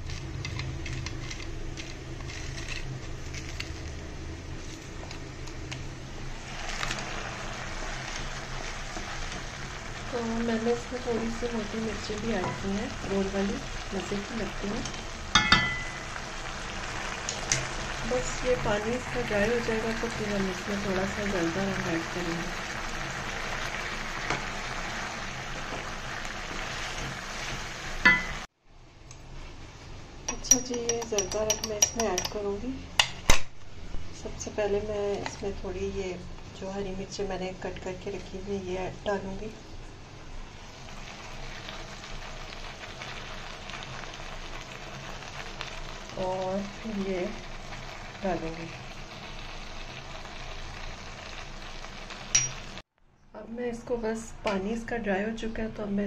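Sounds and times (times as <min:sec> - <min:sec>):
pot simmering with faint crackling: 0:00.0 - 0:29.2, 0:39.8 - 0:53.0
spatula knocking pan: 0:15.3 - 0:16.0.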